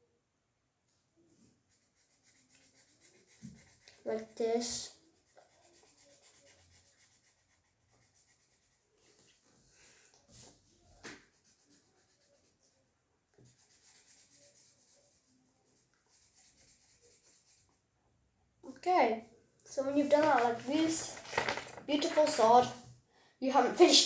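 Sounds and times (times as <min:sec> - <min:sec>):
marker pen scratching on paper: 0:01.7 - 0:09.6, 0:10.3 - 0:12.8, 0:13.4 - 0:17.8, 0:19.8 - 0:22.4.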